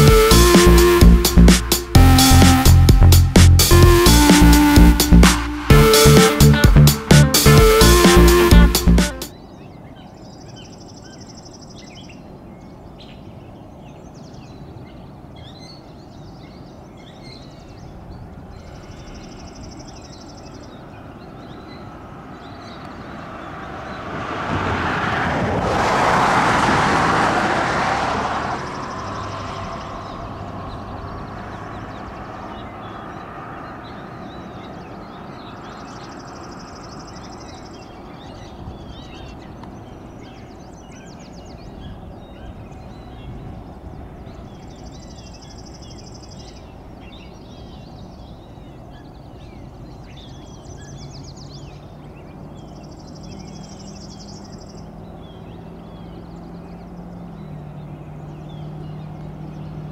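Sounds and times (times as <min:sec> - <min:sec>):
loud rushing noise: 0:00.0 - 0:09.3, 0:23.0 - 0:32.2
faint bird chirps: 0:13.0 - 0:23.5.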